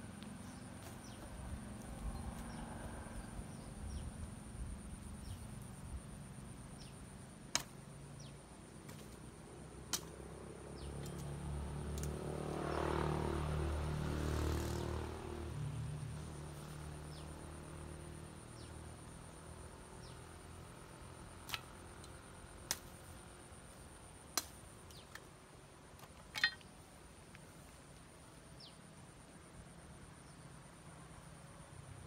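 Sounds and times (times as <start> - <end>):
branches snapping: 21.4 - 23.1.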